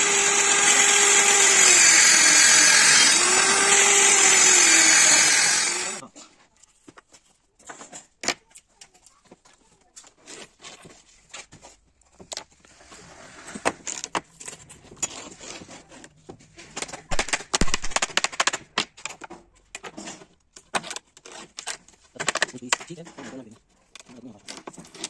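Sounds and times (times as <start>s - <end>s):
snips cutting trim: 0.0s - 6.0s.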